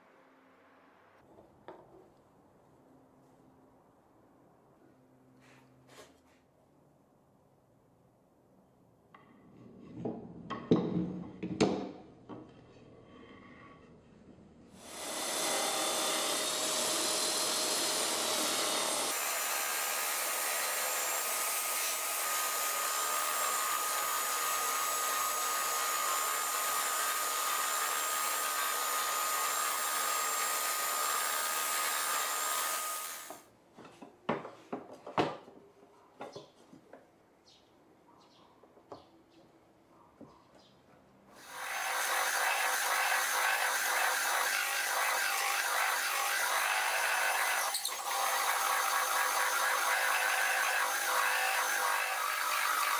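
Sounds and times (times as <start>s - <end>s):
knocks and scrapes: 9.2s - 11.6s.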